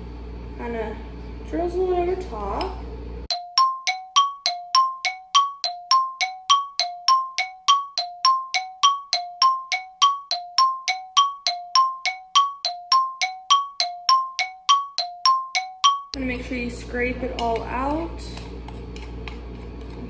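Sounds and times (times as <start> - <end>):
two-note chime: 3.3 - 16.2.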